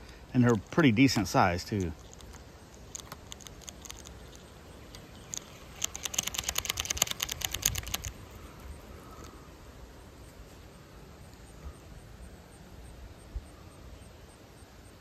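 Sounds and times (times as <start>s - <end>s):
fishing reel clicking: 5.4s - 8.1s.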